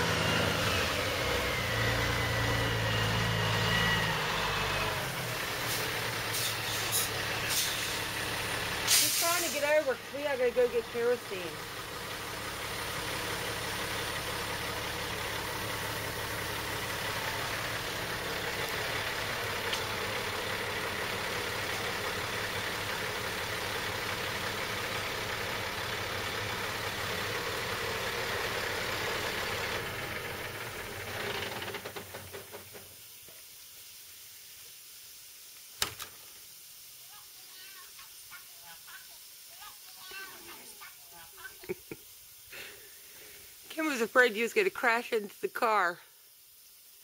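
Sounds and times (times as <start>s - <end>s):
truck diesel engine running: 0.0s - 32.9s.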